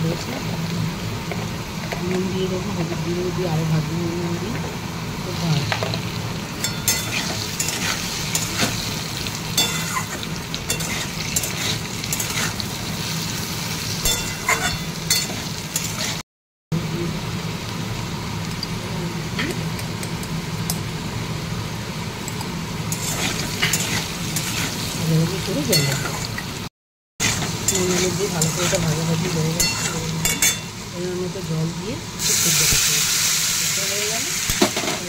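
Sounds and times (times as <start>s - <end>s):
potatoes sizzling in oil: 0.0s - 16.2s, 16.8s - 35.0s
metal spatula scraping pan: 22.9s - 24.9s.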